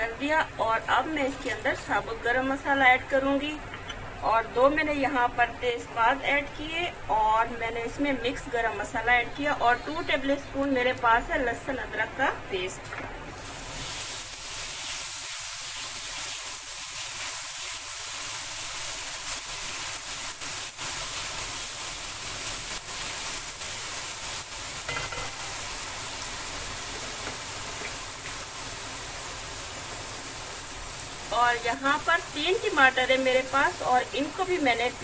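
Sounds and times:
paste sizzling in hot oil: 0:13.4 - 0:35.0.

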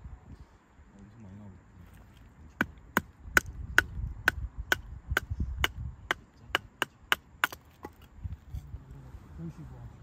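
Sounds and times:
wood being chopped: 0:02.6 - 0:08.1.

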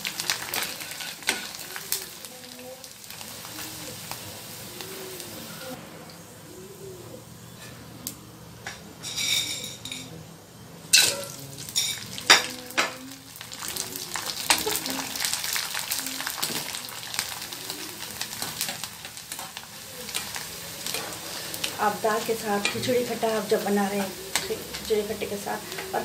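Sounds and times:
dough deep-frying in hot oil: 0:00.0 - 0:05.8, 0:10.9 - 0:26.0
metal utensils clinking on pan: 0:00.2 - 0:01.6, 0:08.7 - 0:10.1, 0:10.9 - 0:13.0, 0:22.3 - 0:26.0.

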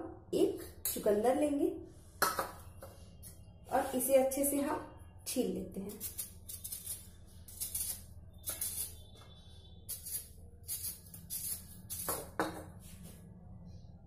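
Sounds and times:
peeler scraping beetroot: 0:05.9 - 0:09.1, 0:09.9 - 0:12.2.

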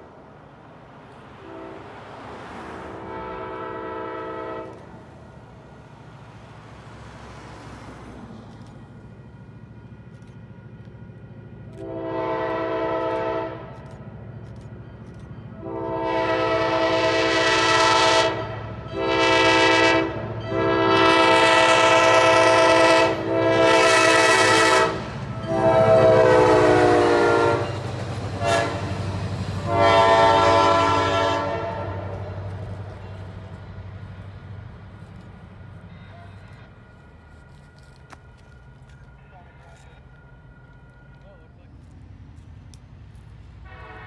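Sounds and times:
train rumbling: 0:00.0 - 0:44.0
locomotive air horn blasts: 0:01.4 - 0:02.0, 0:02.8 - 0:05.0, 0:11.7 - 0:13.9, 0:15.5 - 0:32.6, 0:43.6 - 0:44.0.

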